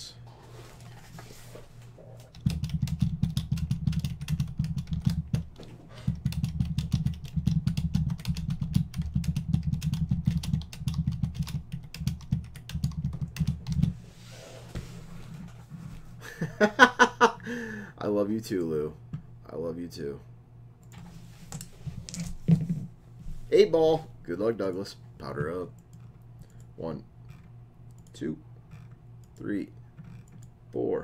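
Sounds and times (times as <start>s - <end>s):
fast typing on computer keyboard: 2.3s - 5.5s, 6.1s - 13.9s.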